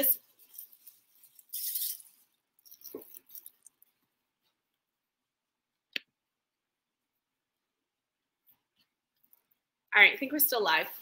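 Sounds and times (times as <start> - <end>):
rustling from handling: 0.3 - 3.7.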